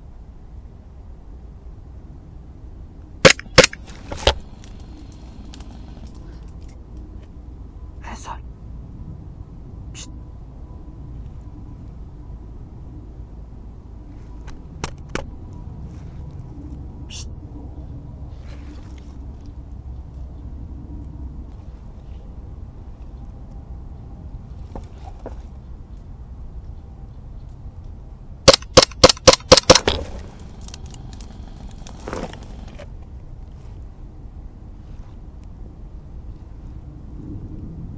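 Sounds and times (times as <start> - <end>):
low rumble of wind: 0.0 - 37.9
airsoft gun firing: 3.2 - 4.5, 28.5 - 30.5
sharp clicks: 3.3 - 6.7, 28.5 - 32.7.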